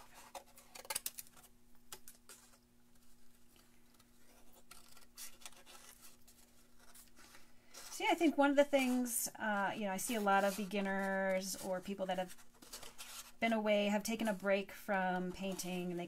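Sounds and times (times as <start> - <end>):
paper rustling: 0.0 - 16.0
scissors snipping paper: 3.9 - 8.0.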